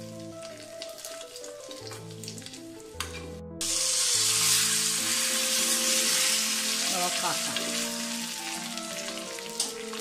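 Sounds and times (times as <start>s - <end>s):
leaves sizzling in hot oil: 0.0s - 2.9s, 3.6s - 10.0s
seeds crackling in hot oil: 0.0s - 3.0s, 3.6s - 10.0s.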